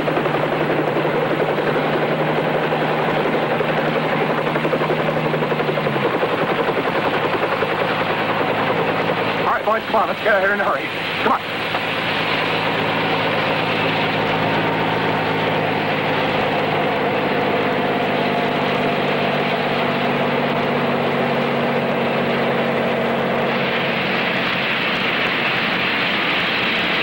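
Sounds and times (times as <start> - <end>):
helicopter flying: 0.0 - 27.0.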